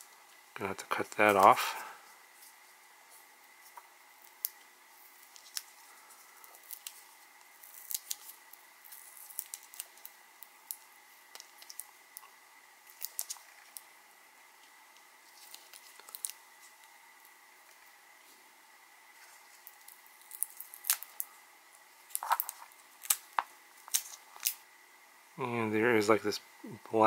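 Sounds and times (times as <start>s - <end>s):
tape being peeled off: 2.4s - 13.9s, 15.0s - 17.9s, 19.1s - 21.3s, 22.1s - 24.6s.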